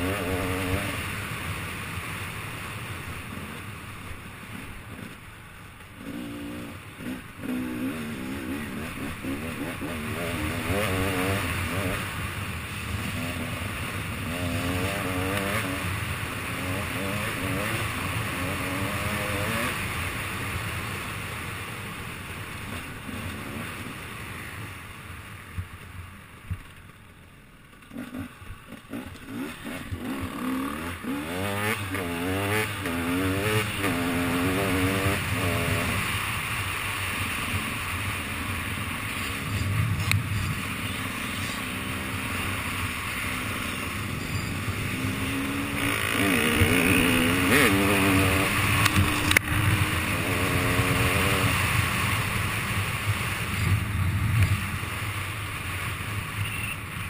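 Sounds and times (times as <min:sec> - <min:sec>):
motorcycle engine revving: 0:00.0 - 0:03.8, 0:04.4 - 0:21.6, 0:27.7 - 0:57.0
wind rushing over microphone: 0:39.3 - 0:41.1, 0:44.0 - 0:54.9.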